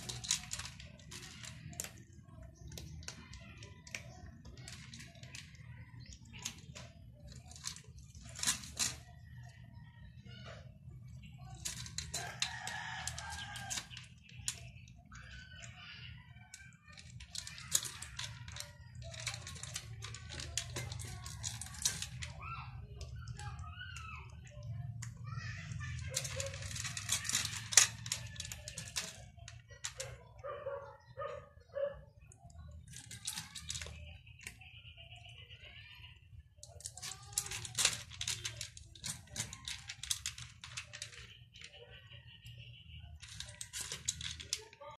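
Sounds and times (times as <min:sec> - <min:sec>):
cat crunching dry kibble: 0:00.0 - 0:09.0, 0:11.1 - 0:14.6, 0:17.0 - 0:22.3, 0:26.2 - 0:29.9.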